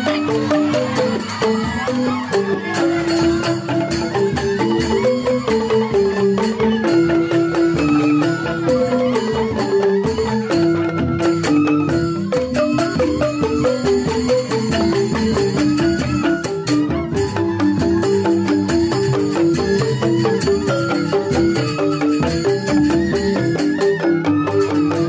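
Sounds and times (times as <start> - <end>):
bamboo xylophones ringing: 0.0 - 25.0.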